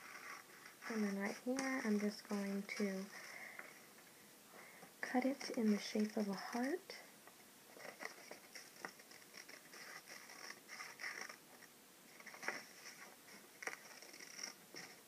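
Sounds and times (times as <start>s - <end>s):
scissors snipping paper: 5.2s - 6.9s.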